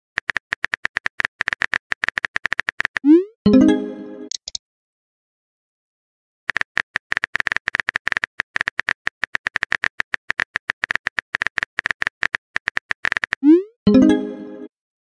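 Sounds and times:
keyboard typing clicks: 0.2s - 3.2s, 4.3s - 4.6s, 6.5s - 13.6s.

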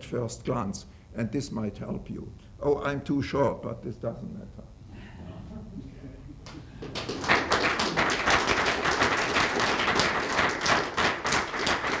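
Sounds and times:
audience applause: 6.5s - 12.0s.

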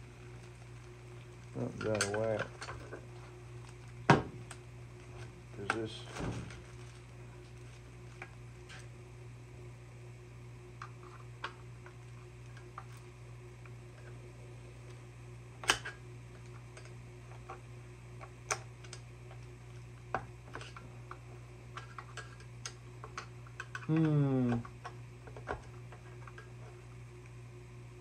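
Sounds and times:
steady low hum: 0.0s - 28.0s
person grunting: 23.9s - 24.6s.

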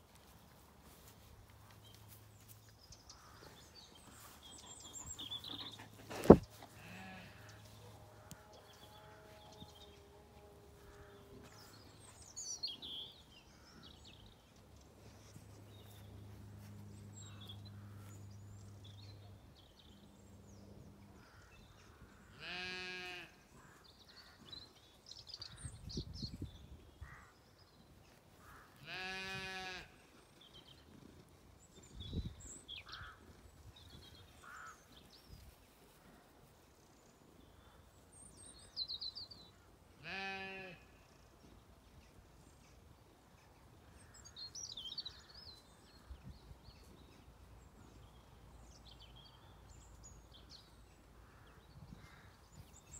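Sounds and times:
birds chirping: 1.7s - 7.9s
sheep bleating: 6.8s - 7.6s, 22.4s - 23.4s, 28.8s - 30.0s, 40.0s - 41.0s.

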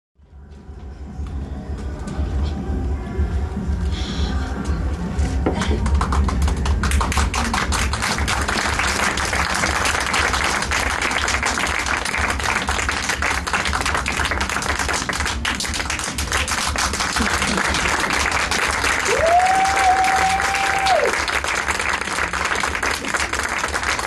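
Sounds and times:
group of people clapping: 5.5s - 24.0s.

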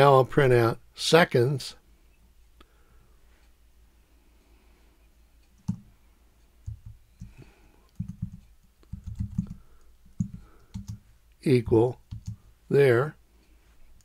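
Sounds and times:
typing on computer keyboard: 5.6s - 5.9s, 6.6s - 11.0s, 12.0s - 12.4s.

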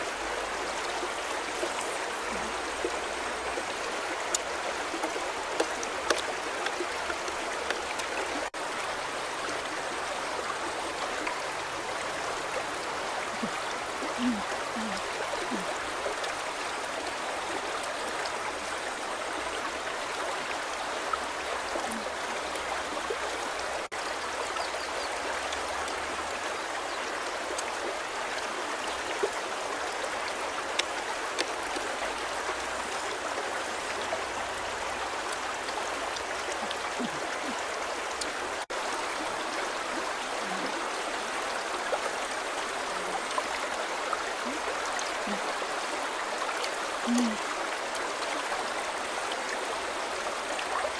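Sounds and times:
river running over rocks: 0.0s - 50.9s
faint clicks: 4.2s - 8.5s.

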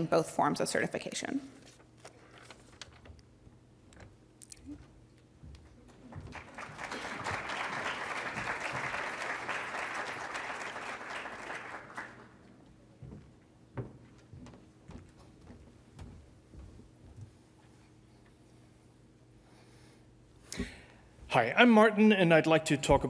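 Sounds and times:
audience applauding: 5.9s - 12.5s.

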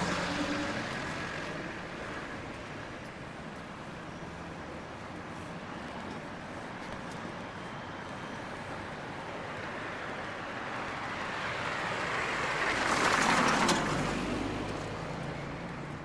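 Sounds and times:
car driving past: 0.0s - 2.4s, 10.9s - 16.0s.

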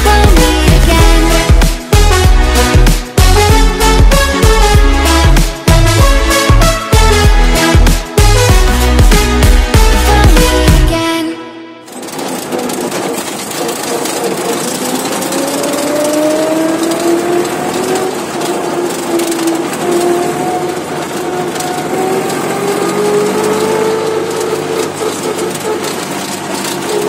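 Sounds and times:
tractor engine running: 0.0s - 27.0s
steady rattle: 11.8s - 27.0s.

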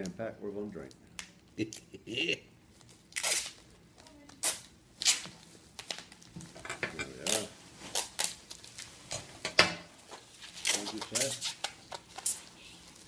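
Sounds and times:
plastic wrap rustling: 2.7s - 13.0s
packing tape ripping off roll: 3.1s - 6.3s, 7.2s - 8.9s, 10.1s - 13.0s.

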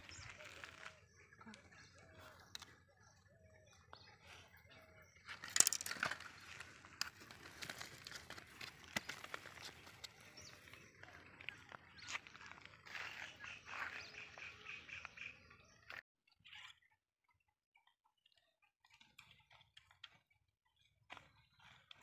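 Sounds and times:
hands rustling fish and line: 5.3s - 13.2s.

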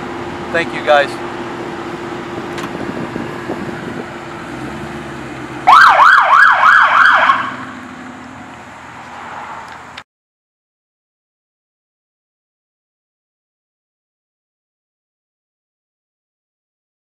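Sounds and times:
vehicle noise: 0.0s - 10.1s
police siren yelps: 5.6s - 7.8s.

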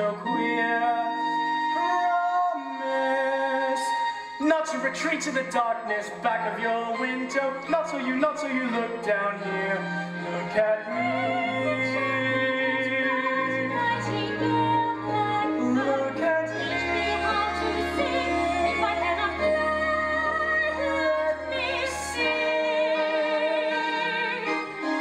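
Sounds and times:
instrumental accompaniment: 0.0s - 25.0s
woman singing operatically: 10.4s - 25.0s.

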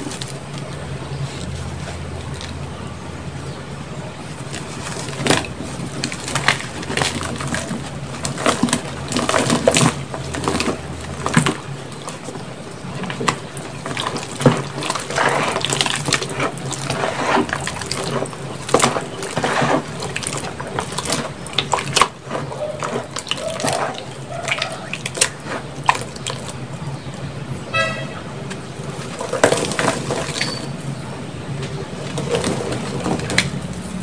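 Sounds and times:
wet squelching and splashing: 4.4s - 26.8s
short pitched horn call: 27.7s - 28.3s.

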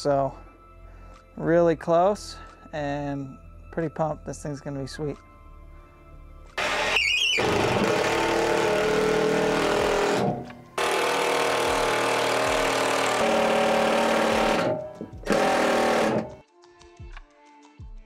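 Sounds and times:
impact driver driving screws: 6.6s - 16.4s.

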